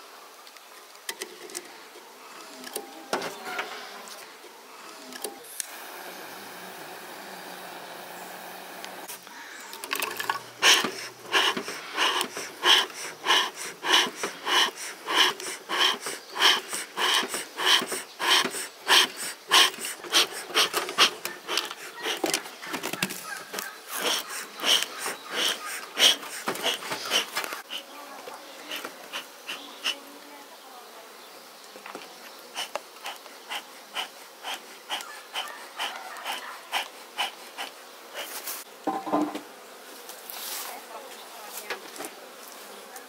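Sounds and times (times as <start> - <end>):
steady hiss: 3.7 - 22.7, 31.7 - 40.8
bellows puffing air: 4.9 - 9.5, 10.2 - 27.9, 28.6 - 30.0, 32.6 - 38.6.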